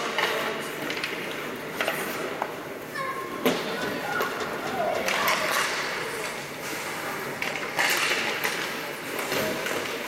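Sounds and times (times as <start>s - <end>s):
skate blades scraping ice: 0.0s - 2.4s
hockey sticks and puck clacking: 0.0s - 10.0s.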